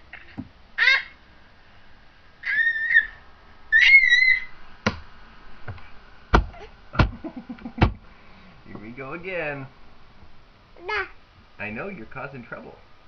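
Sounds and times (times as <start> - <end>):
baby squealing: 0.1 - 1.2, 2.4 - 4.6
sharp thumps: 5.7 - 8.0.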